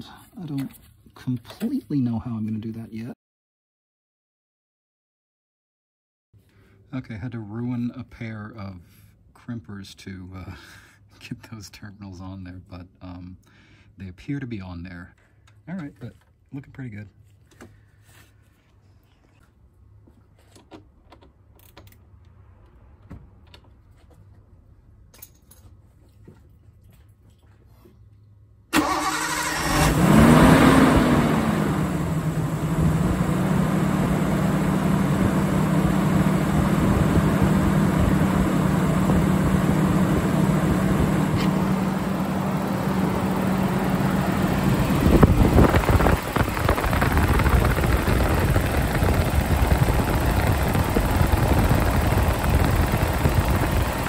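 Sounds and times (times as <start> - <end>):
car engine starting and idling: 28.7 - 54.0.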